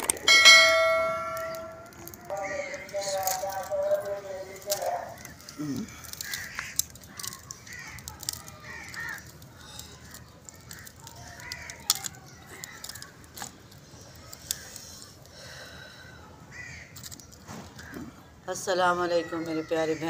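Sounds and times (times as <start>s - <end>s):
crows cawing: 0.4s - 13.1s, 14.6s - 17.0s, 19.0s - 20.0s
dry twigs snapping: 1.3s - 15.3s.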